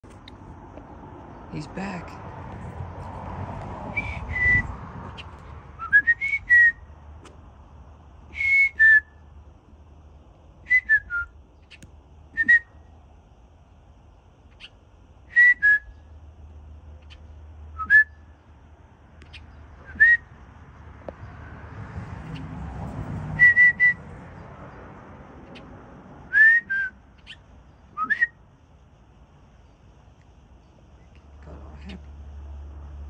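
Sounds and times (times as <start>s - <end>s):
short whistled notes: 4.0s - 4.7s, 28.0s - 28.4s.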